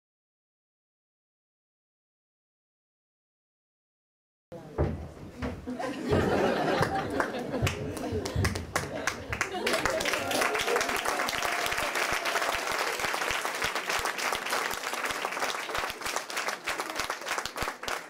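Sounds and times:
audience applauding: 6.4s - 18.0s.

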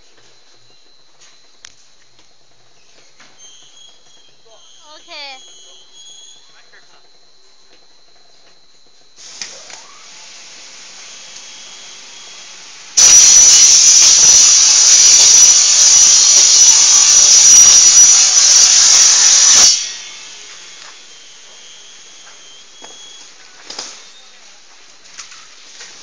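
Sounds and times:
saw grinding with high whine: 3.2s - 7.0s, 9.7s - 24.7s.

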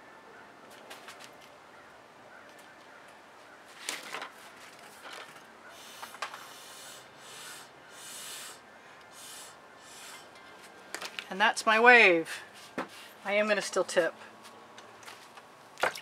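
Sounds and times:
paint bottle hissing spurts: 5.8s - 10.2s.

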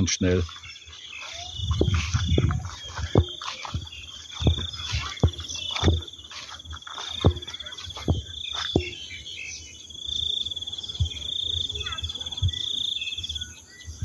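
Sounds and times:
footsteps on grass: 0.0s - 9.7s
high-pitched insect trilling: 0.5s - 9.0s.

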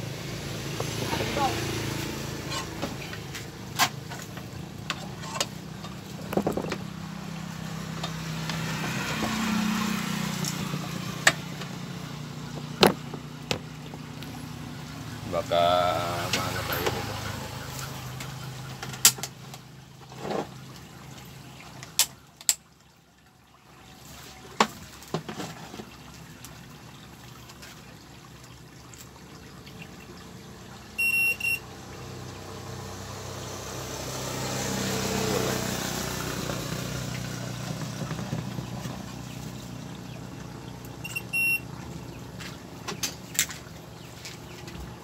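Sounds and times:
multimeter beeps: 31.0s - 31.6s, 41.0s - 41.6s.

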